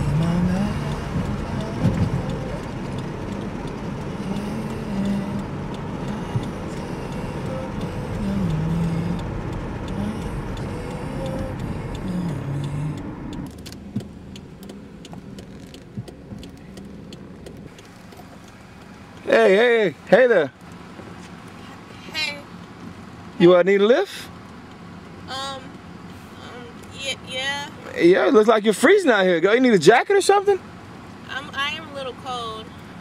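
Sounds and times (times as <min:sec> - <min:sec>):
car engine and road noise: 0:00.0 - 0:33.0.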